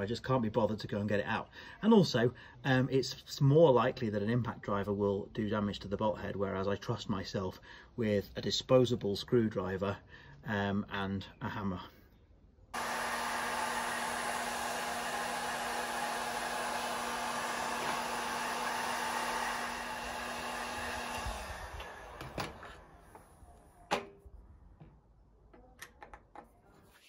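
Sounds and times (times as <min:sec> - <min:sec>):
heat gun blowing with low hum: 0:12.8 - 0:24.2
sharp clicks and knocks: 0:23.9 - 0:26.5.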